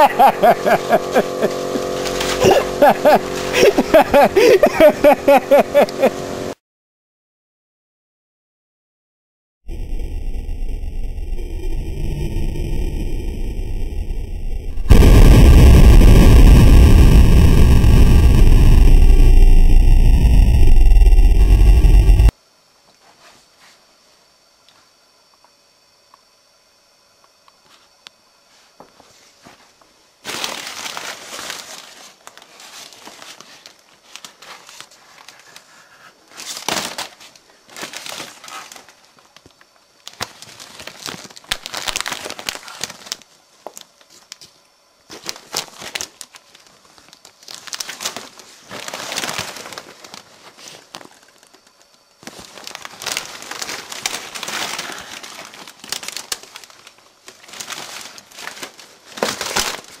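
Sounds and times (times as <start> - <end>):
plastic bag crinkling: 30.2 - 35.7, 36.3 - 44.4, 45.1 - 60.0.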